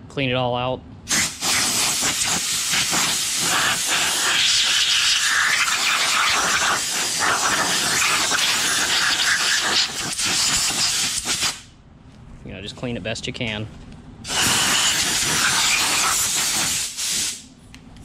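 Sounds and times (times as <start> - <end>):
air blow gun hissing: 1.1 - 11.7, 14.3 - 17.4.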